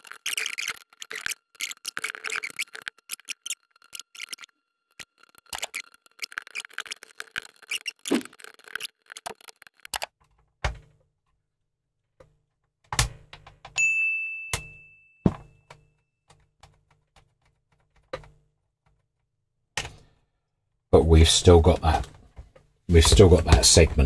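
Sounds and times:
plastic parts clicking and rattling: 0.0 - 11.4.

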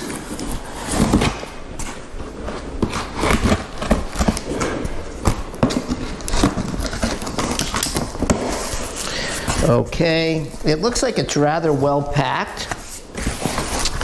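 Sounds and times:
knife slicing tape and cardboard: 2.8 - 4.6
hands handling cardboard flaps: 12.5 - 14.0.

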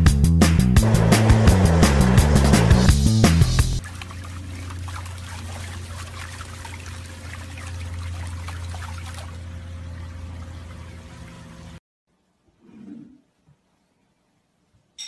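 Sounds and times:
steady low hum: 0.8 - 11.8
water splashing from paddling dog: 3.8 - 11.3.

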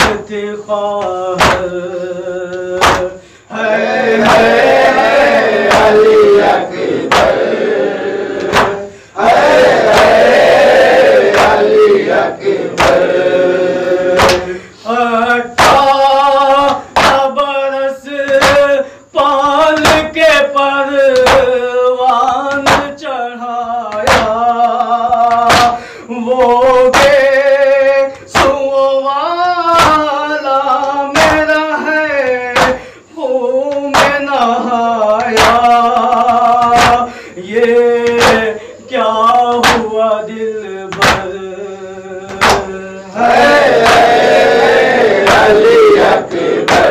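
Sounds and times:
man chanting a lament: 0.0 - 46.9
rhythmic chest-beating: 0.0 - 46.9.

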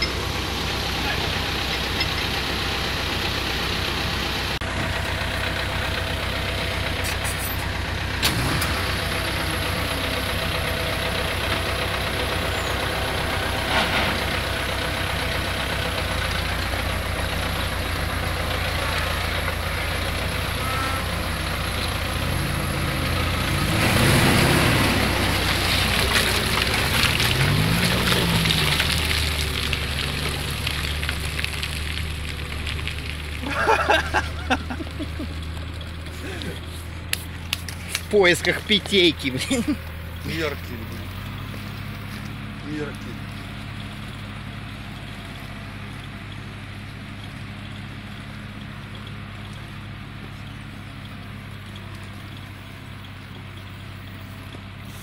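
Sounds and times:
vehicle engine revving: 0.0 - 49.5.

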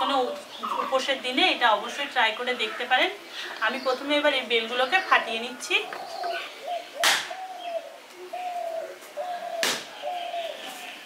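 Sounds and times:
bird calling: 2.5 - 11.0
fruit cracking on hard ground: 9.6 - 9.9.

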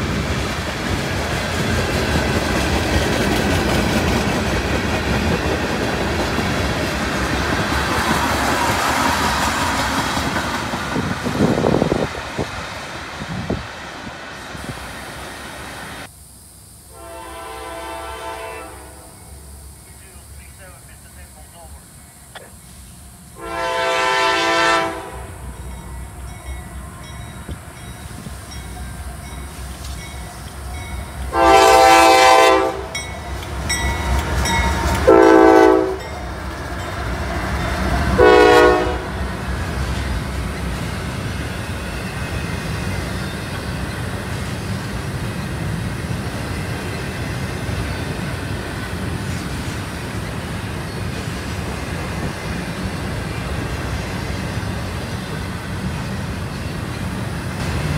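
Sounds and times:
train cars rumbling on rails: 0.0 - 16.1, 17.0 - 57.9
locomotive horn blasts: 16.9 - 19.2, 23.4 - 25.4, 31.3 - 33.0, 35.0 - 36.2, 38.1 - 39.2.

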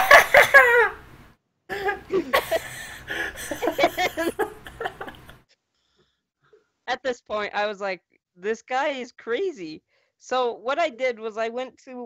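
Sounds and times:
people laughing: 0.0 - 1.0, 1.7 - 5.4.

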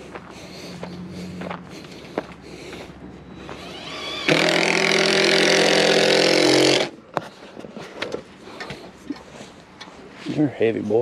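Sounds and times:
small engine running fast: 0.4 - 6.9.

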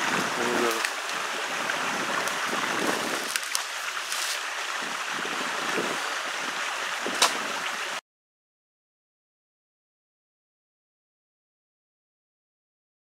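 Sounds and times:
steady rushing hiss: 0.0 - 8.0.

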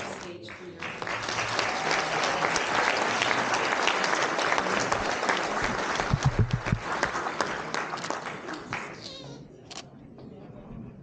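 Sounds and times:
audience applauding: 0.0 - 9.3
low thumps near microphone: 6.0 - 6.9.

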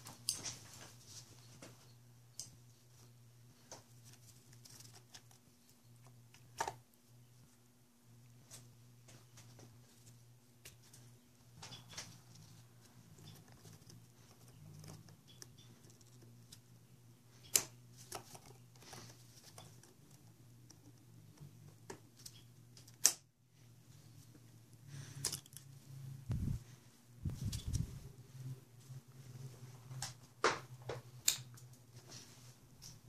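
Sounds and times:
low hum: 23.5 - 29.9.

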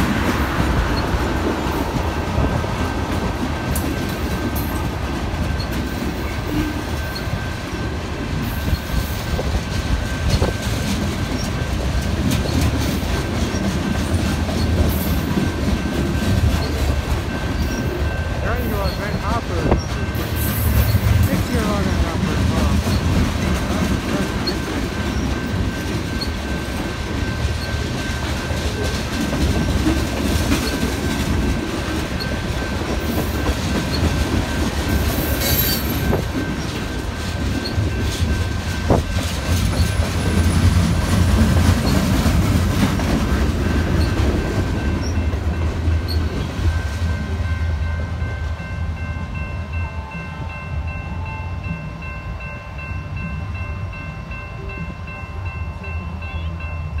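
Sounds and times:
train wheels rumbling on rail: 0.0 - 57.0
wheels clicking over rail joints: 8.2 - 46.9.

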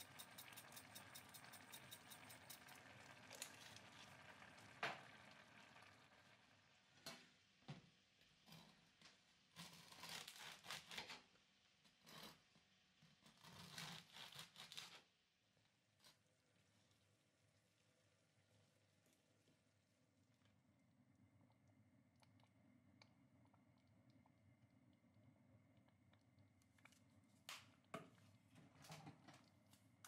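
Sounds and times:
seeds rattling in a jar: 0.0 - 3.8
bread crust crackling: 0.0 - 4.6, 13.4 - 15.1
bread knife sawing crusty bread: 9.6 - 11.1, 13.4 - 15.0.

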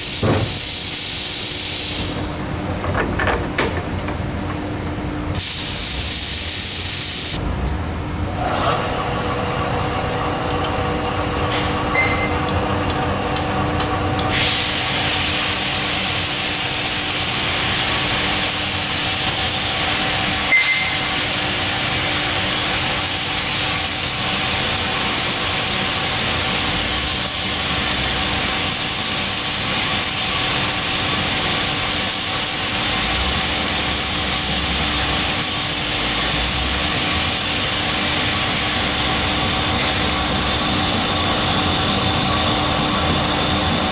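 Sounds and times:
boring bar cutting steel hiss: 14.2 - 41.3.

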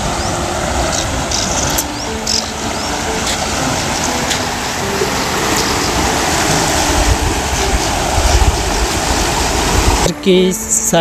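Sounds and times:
canal water rushing through culvert: 0.0 - 11.0.

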